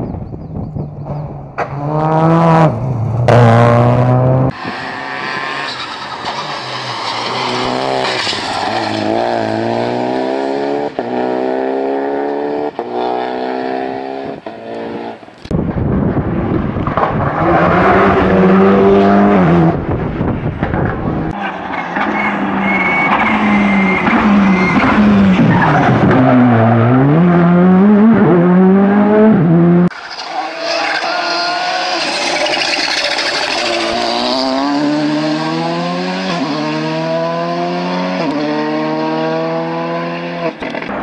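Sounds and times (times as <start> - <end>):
rally car engines accelerating: 0.7 - 15.2, 16.4 - 41.0
tyres squealing: 29.9 - 34.3.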